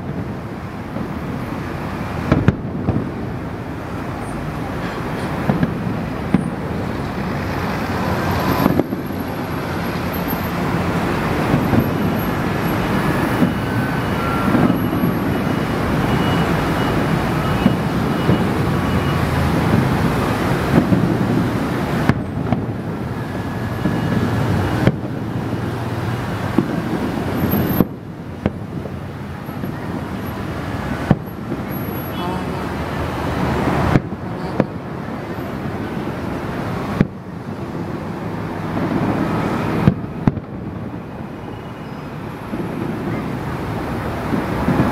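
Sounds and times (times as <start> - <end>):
fireworks bangs: 0.0 - 44.9
fireworks bursting: 0.0 - 44.9.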